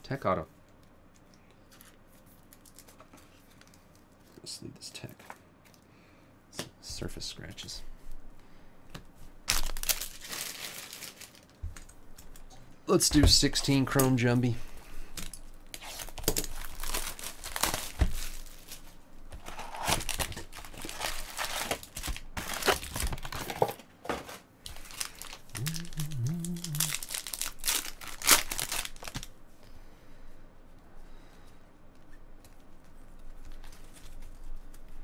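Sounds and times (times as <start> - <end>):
foil packs crinkling and tearing: 9.5 - 12.4, 15.2 - 23.7, 24.6 - 29.3
cards being handled: 32.0 - 35.0.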